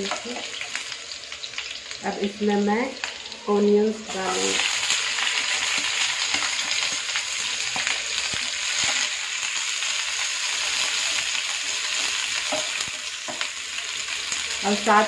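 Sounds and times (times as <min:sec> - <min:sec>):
onions sizzling in oil: 0:00.0 - 0:15.0
spatula tapping and scraping pan: 0:12.0 - 0:13.5.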